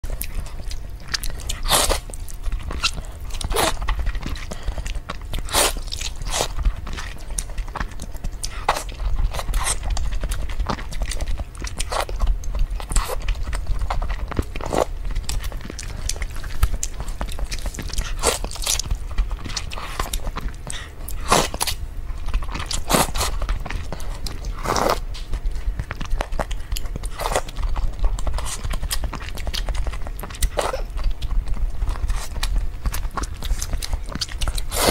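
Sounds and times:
steady low hum: 0.0s - 34.9s
noodles slurped and chewed: 25.7s - 34.9s.

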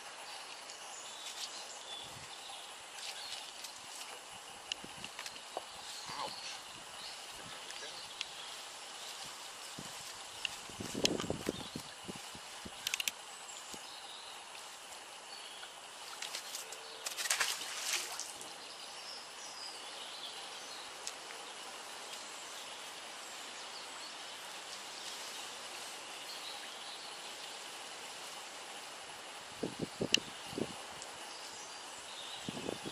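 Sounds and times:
outdoor background noise: 0.0s - 32.9s
rustling and scuffing: 3.0s - 4.3s, 8.4s - 12.6s.

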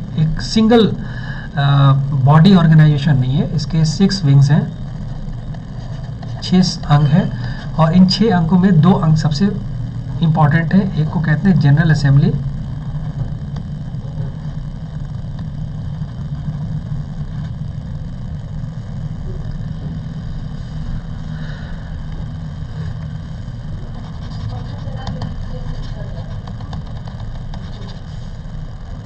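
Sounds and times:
low mechanical hum: 0.0s - 29.0s.

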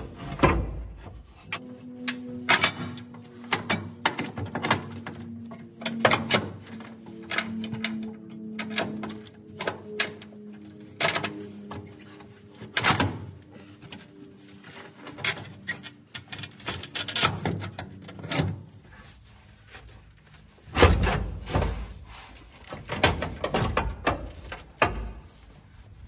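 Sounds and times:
metal clanks and scrapes: 0.0s - 25.6s.

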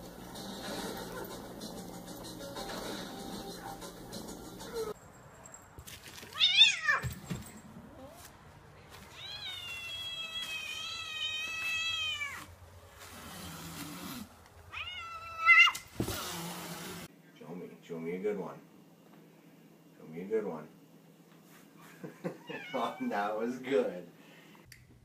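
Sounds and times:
cats meowing: 6.3s - 7.1s, 9.0s - 12.5s, 14.7s - 15.8s, 22.3s - 23.3s.

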